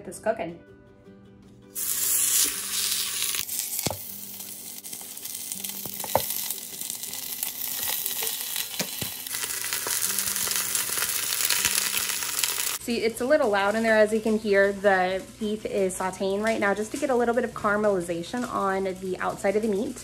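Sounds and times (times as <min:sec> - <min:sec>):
meat sizzling in hot oil: 0:01.8 - 0:12.8.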